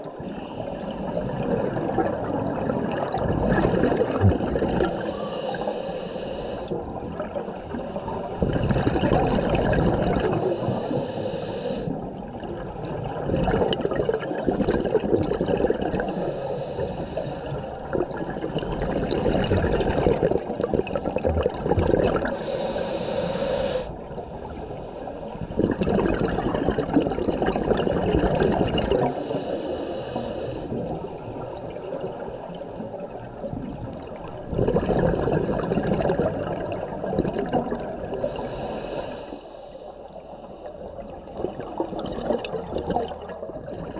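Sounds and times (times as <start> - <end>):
exhaust bubbles rushing: 1.3 - 5.0, 8.4 - 10.4, 13.2 - 16.0, 17.9 - 22.3, 25.6 - 29.1, 34.4 - 38.2
diver inhaling through regulator: 3.6 - 6.8, 10.0 - 12.2, 15.8 - 18.5, 22.1 - 25.9, 28.9 - 30.9, 38.0 - 40.0, 43.6 - 43.9.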